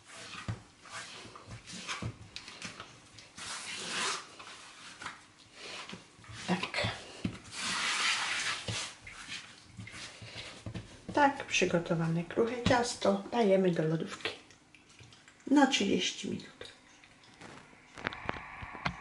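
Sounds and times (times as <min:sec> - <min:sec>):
hands kneading dough: 0:00.0 - 0:14.4.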